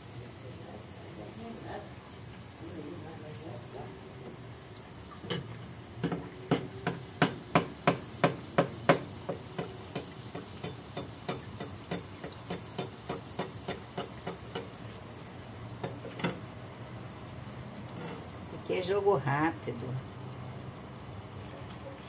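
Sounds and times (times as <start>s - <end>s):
food sizzling in hot oil: 0.0s - 22.0s
metal skimmer knocking on pan: 5.2s - 14.8s, 15.8s - 16.4s.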